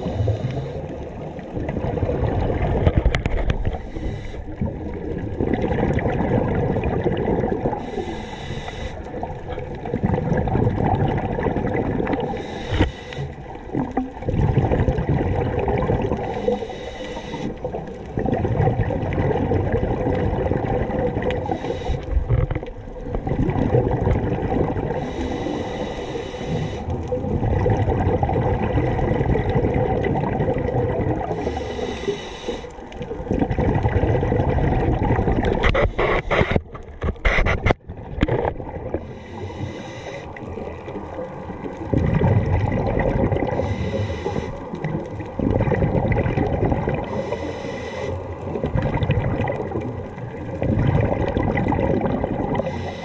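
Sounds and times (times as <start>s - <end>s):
regulator hissing inhale: 0.0s - 0.9s, 3.7s - 4.6s, 7.7s - 9.2s, 12.2s - 13.6s, 16.2s - 17.6s, 21.4s - 22.3s, 24.9s - 27.0s, 31.3s - 32.9s, 39.0s - 40.4s, 43.5s - 44.8s, 47.0s - 48.3s, 52.6s - 53.0s
bubbling of exhaled air: 0.0s - 53.0s.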